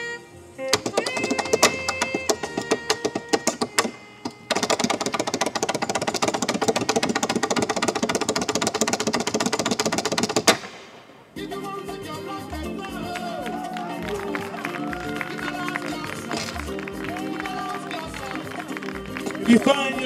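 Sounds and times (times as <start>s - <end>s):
backing music: 0.0s - 8.3s, 10.4s - 20.0s
tap shoes on tap board: 0.7s - 10.6s.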